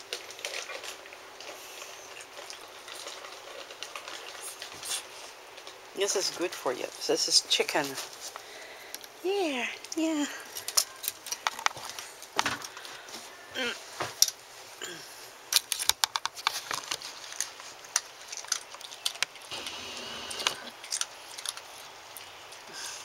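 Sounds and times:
dog chewing treat: 0.0 - 5.8, 16.4 - 19.6, 20.4 - 22.7.

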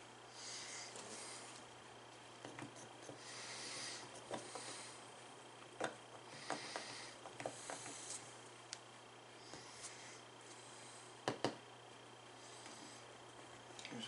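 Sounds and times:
steady low hum: 0.0 - 14.0
airbrush hissing: 2.7 - 5.1, 6.3 - 8.4.

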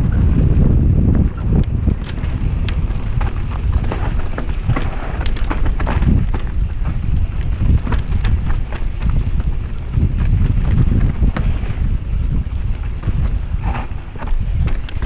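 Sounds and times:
bike clicking and rattling: 0.0 - 15.0
heavy uneven rumble: 0.0 - 15.0
wind buffeting microphone: 0.0 - 15.0.

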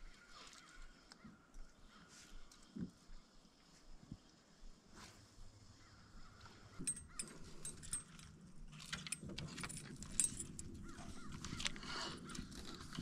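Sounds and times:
low steady hum: 2.4 - 13.0
gear clicking and rattling: 6.6 - 13.0.

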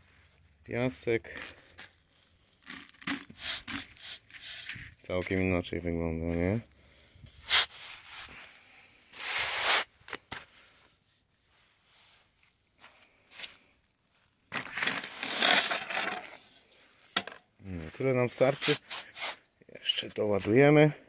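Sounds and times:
sand scraping and pouring: 2.2 - 5.0, 7.4 - 9.9, 14.5 - 16.6, 18.5 - 19.4.

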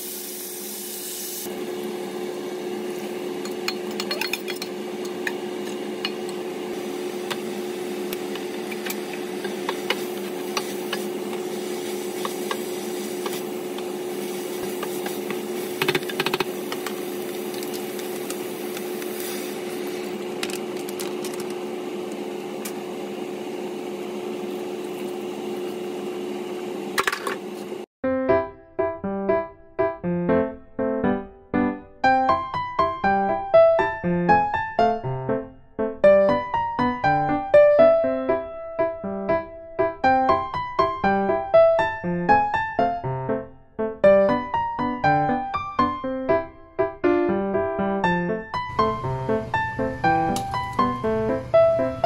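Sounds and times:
food sizzling in a pot: 0.0 - 26.9.

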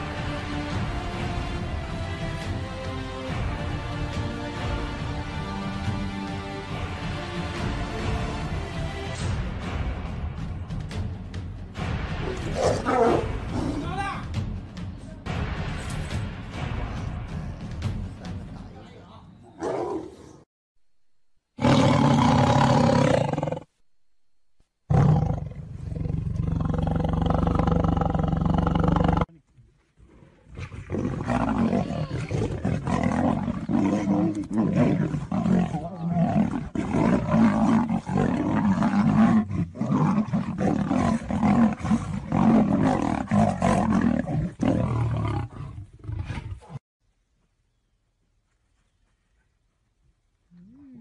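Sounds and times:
big cats roaring: 21.6 - 23.7, 24.9 - 29.3, 30.5 - 46.8.

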